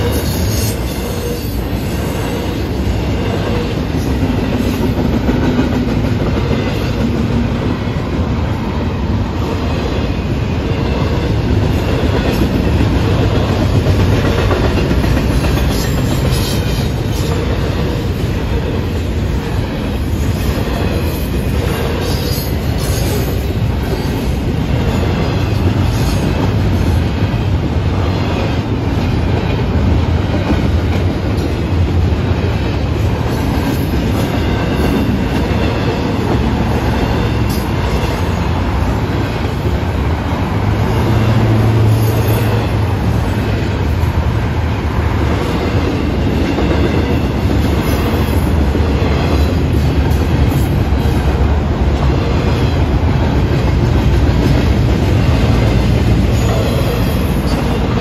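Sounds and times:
freight train rolling by: 0:00.0 - 0:58.0.

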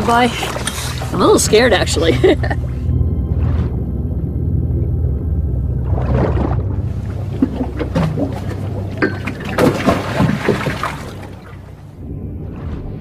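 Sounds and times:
water splashing around boat: 0:00.0 - 0:13.0.

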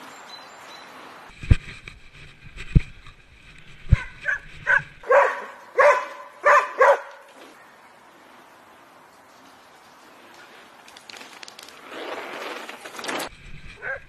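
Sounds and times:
dog barking: 0:04.0 - 0:07.3.

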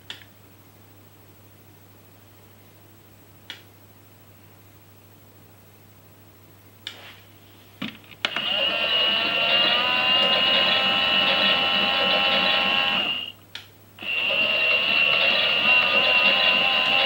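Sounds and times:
small electric motor whining: 0:08.3 - 0:13.3, 0:14.0 - 0:17.0.

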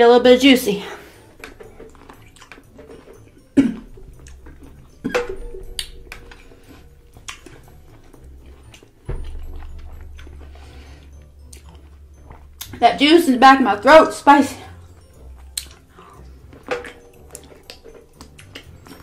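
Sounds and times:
pickle crunching while chewed: 0:01.4 - 0:04.8, 0:15.4 - 0:19.0
low rumble: 0:03.9 - 0:13.8
dull thump: 0:09.1 - 0:10.6.

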